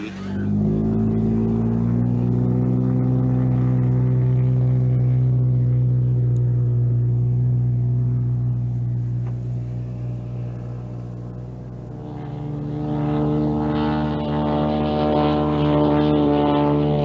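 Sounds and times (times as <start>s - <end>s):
model plane engine at full power: 0.0s - 17.0s.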